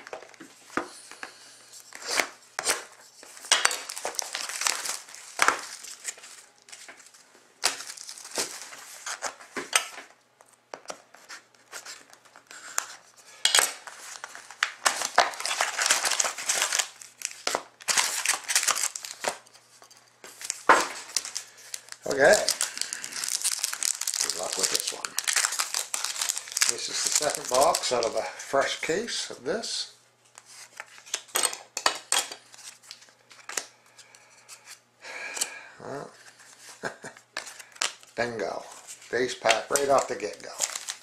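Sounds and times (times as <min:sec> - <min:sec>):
plastic shrink-wrap crinkling: 0:03.2 - 0:09.4, 0:13.7 - 0:28.8, 0:36.8 - 0:41.0
paper and cardboard rustling: 0:10.8 - 0:28.2, 0:36.2 - 0:41.0.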